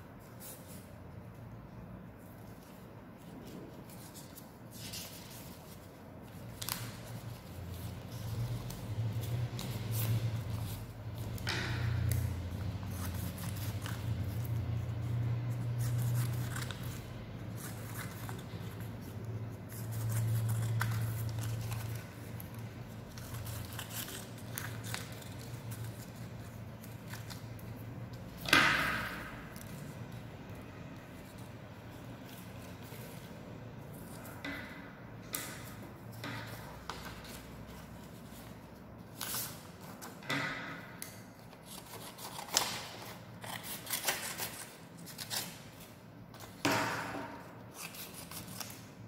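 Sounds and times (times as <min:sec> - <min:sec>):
paper rustling: 0:00.2 - 0:49.0
scissors snipping paper: 0:02.2 - 0:49.0.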